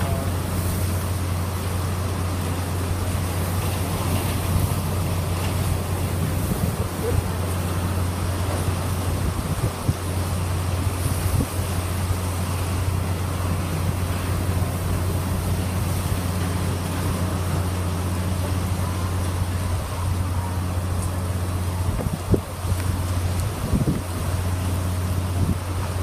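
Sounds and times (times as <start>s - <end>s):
strong wind blowing: 0.0s - 16.3s, 21.4s - 25.8s
driving rain: 0.0s - 26.0s.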